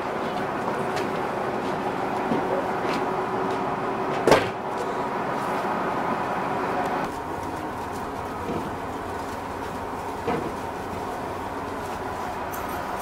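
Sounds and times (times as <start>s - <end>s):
diesel railcar engine idling: 0.0s - 13.0s.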